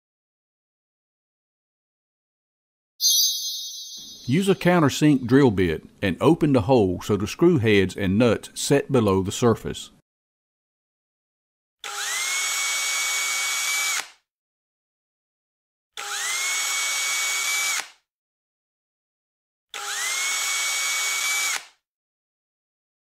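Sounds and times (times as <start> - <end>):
cordless drill whining: 11.8 - 14.1, 16.0 - 17.9, 19.8 - 21.7.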